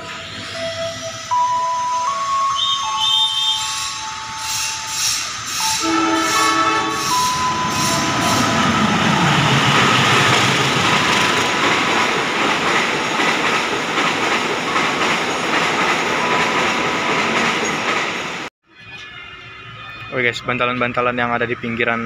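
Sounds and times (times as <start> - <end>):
train wheels rumbling on rails: 3.6 - 18.5.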